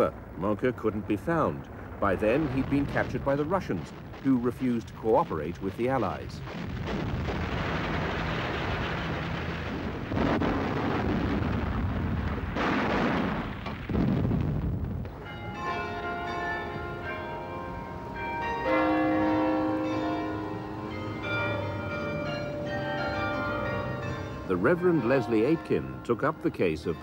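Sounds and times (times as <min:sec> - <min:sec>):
explosions: 0:00.0 - 0:15.2
heavy gunfire: 0:01.8 - 0:14.8
church bells ringing: 0:15.1 - 0:27.0.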